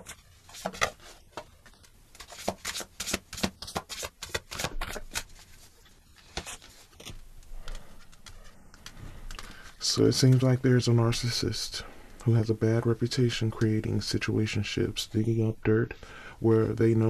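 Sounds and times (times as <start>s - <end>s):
cards being shuffled: 0.0s - 10.6s.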